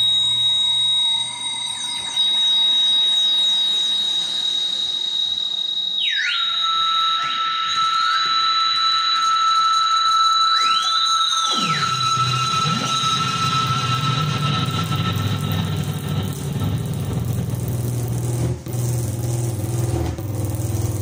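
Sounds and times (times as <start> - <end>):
high electronic tone: 0.0 - 21.0
swooping electronic glides: 6.0 - 20.0.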